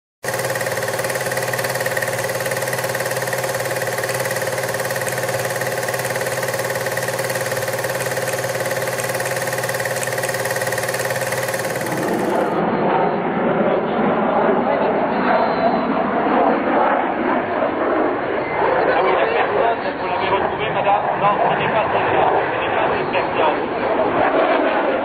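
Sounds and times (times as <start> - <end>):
film projector running: 0.2 - 12.6.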